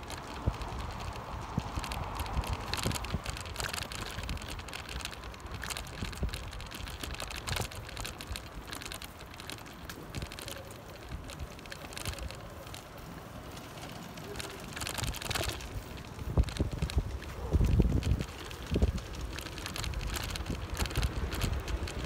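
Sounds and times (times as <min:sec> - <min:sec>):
wind on microphone: 0:00.0 - 0:08.7, 0:14.8 - 0:22.0
bicycle rattling over cobblestones: 0:00.0 - 0:22.0.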